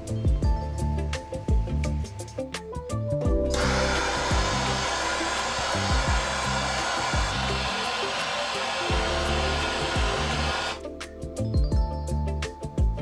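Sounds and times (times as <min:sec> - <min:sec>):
blowtorch hissing: 0:03.5 - 0:10.8.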